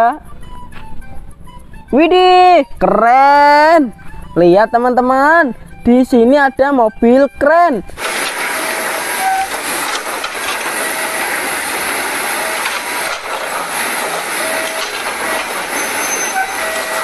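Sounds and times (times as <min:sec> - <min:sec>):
crawler crane mechanical noise: 0:07.9 - 0:17.0
brief squeaks: 0:14.4 - 0:17.0.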